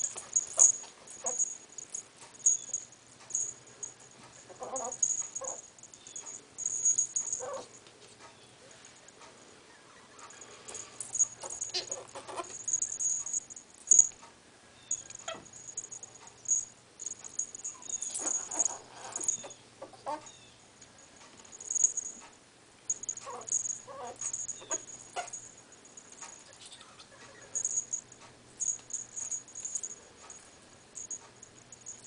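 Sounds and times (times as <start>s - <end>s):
ferrets squeaking and chattering: 4.5s - 6.4s, 11.4s - 13.1s, 23.1s - 25.4s.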